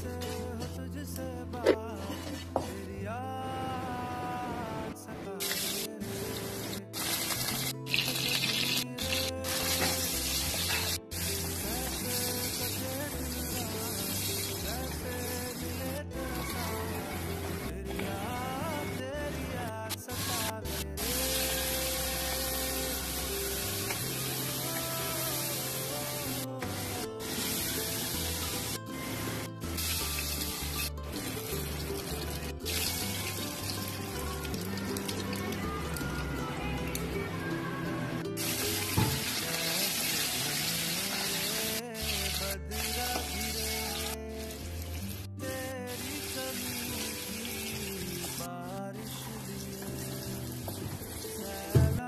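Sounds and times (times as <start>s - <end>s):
film song with bass line: 0.0s - 52.0s
vegetables sizzling in hot oil: 5.4s - 15.8s, 20.2s - 35.3s, 38.4s - 45.2s, 45.9s - 48.5s.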